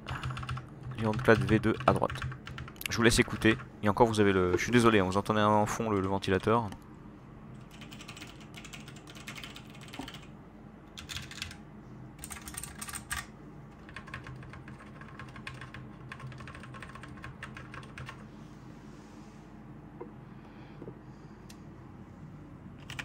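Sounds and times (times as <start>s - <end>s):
mechanical keyboard typing: 0.0s - 3.7s, 7.6s - 10.3s, 11.0s - 11.6s, 12.2s - 18.2s, 22.8s - 23.0s
computer fan humming: 0.0s - 23.0s.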